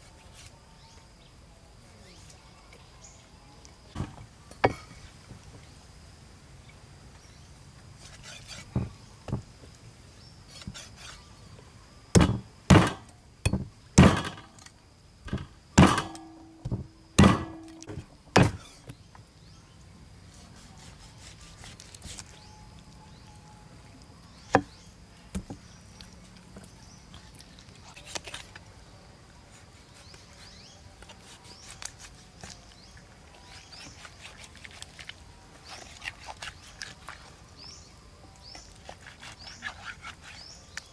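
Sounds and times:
cleaver chopping on wooden board: 0:08.5 - 0:09.4, 0:12.2 - 0:14.4, 0:15.3 - 0:18.7, 0:24.5 - 0:25.6
knife cutting: 0:10.5 - 0:11.2, 0:20.4 - 0:22.4.

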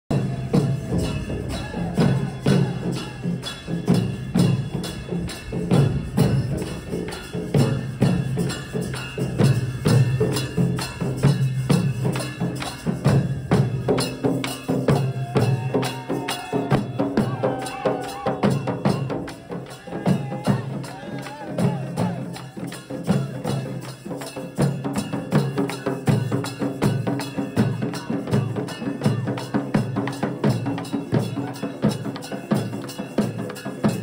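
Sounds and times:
cymbal clashes: 0:00.1 - 0:21.0
barrel drums beaten with sticks: 0:00.1 - 0:34.0.

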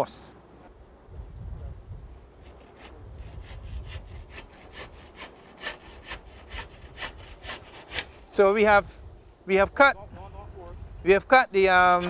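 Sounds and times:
hand saw cutting wood: 0:02.4 - 0:08.3.

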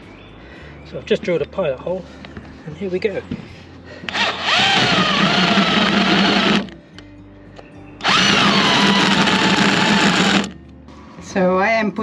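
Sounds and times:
electric drill with hole saw cutting: 0:04.1 - 0:06.8, 0:08.0 - 0:10.6.

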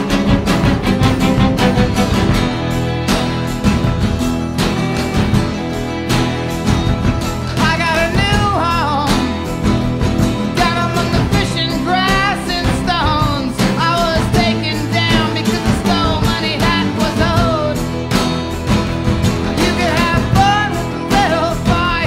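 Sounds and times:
guitar and band accompaniment: 0:00.0 - 0:22.0
person singing: 0:07.5 - 0:09.6, 0:10.5 - 0:18.1, 0:19.4 - 0:22.0.

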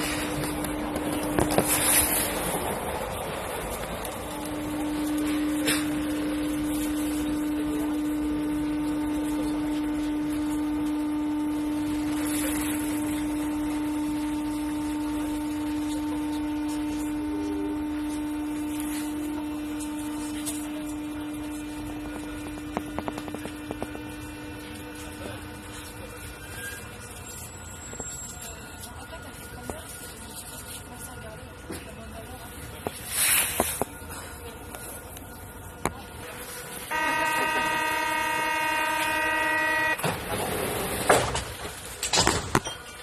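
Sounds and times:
train rumbling in tunnel: 0:00.0 - 0:06.4
wheels clicking on track: 0:00.0 - 0:06.7
train whine: 0:00.0 - 0:42.1.

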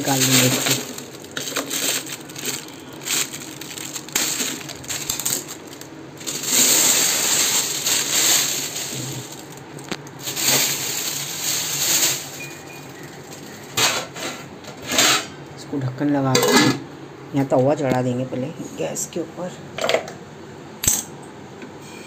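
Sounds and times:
foil and plastic crinkling: 0:00.0 - 0:14.2.

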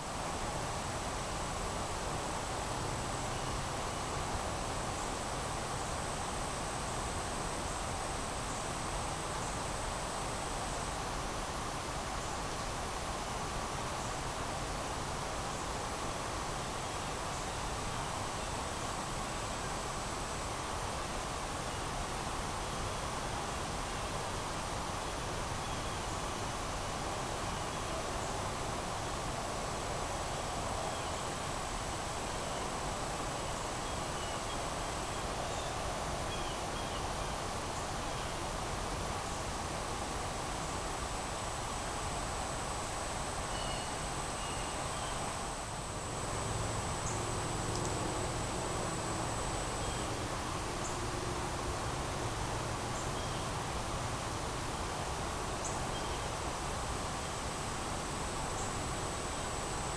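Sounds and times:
steady hiss: 0:00.0 - 0:59.9
faint insect chirps: 0:02.2 - 0:59.9
high insect whine: 0:40.6 - 0:54.9
faint bird chirps: 0:43.5 - 0:45.3.

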